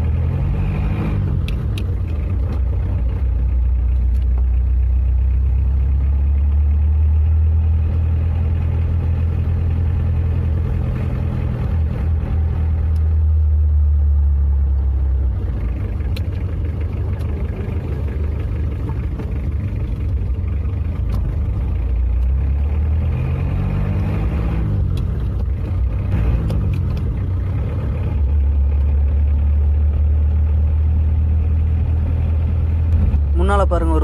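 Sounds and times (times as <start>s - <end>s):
car engine through gear changes: 0.0s - 34.0s.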